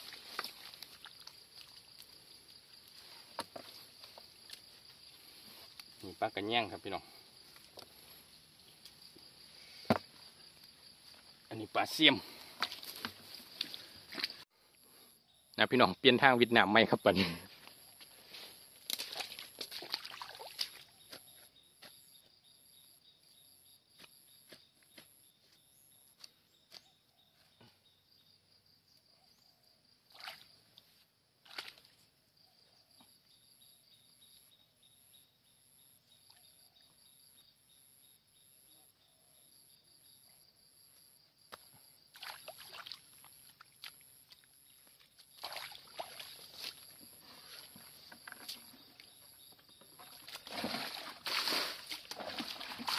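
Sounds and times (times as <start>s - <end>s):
muddy water sloshing: 0.0s - 6.1s, 11.8s - 14.4s, 18.8s - 21.0s, 30.1s - 30.7s, 31.4s - 32.0s, 42.1s - 52.9s
insects chorus: 0.0s - 52.9s.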